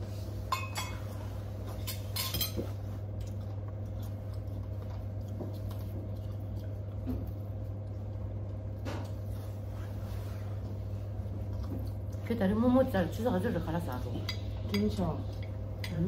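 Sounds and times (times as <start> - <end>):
steady low hum: 0.0 - 16.0
cutlery clinking against plates: 0.5 - 1.2, 1.8 - 2.8.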